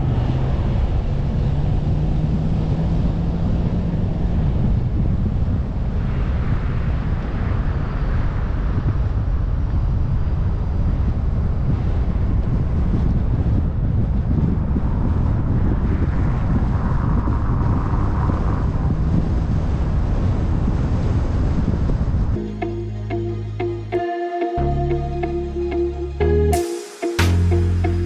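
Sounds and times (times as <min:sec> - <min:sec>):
tyres rumbling on road: 0:00.0 - 0:06.0
wind buffeting microphone: 0:00.0 - 0:22.4.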